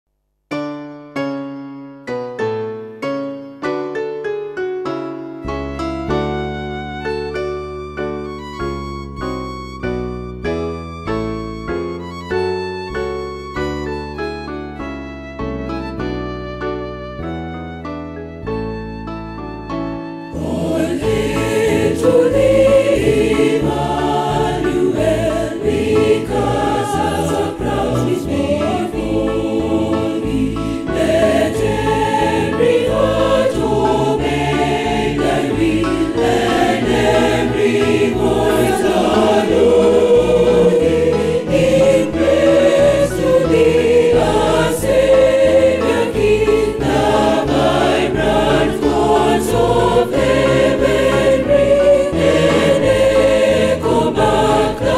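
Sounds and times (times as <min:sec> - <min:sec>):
choir singing a hymn: 0:20.2 - 0:54.9.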